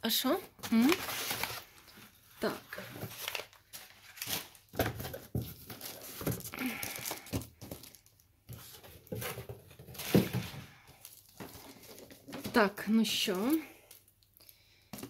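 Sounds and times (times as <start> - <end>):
plastic mailer bag crinkling: 0.6 - 2.0, 2.7 - 8.3, 9.9 - 12.7
cardboard box rustling: 0.9 - 1.8, 2.6 - 12.7.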